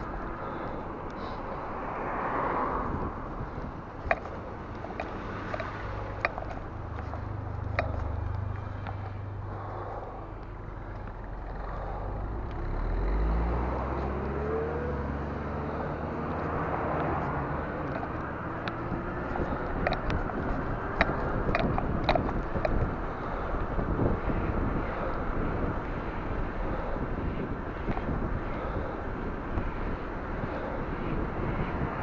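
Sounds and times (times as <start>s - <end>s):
car accelerating: 0.0s - 32.0s
car engines humming: 0.0s - 32.0s
road rumble: 0.0s - 32.0s
wind: 0.0s - 32.0s
bicycle clicks and rattles: 2.8s - 12.6s, 17.0s - 31.9s.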